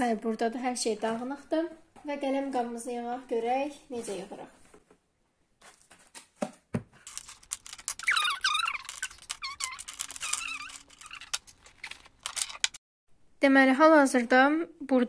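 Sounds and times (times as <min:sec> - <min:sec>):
plastic pens clicking and clattering: 0:07.1 - 0:12.8.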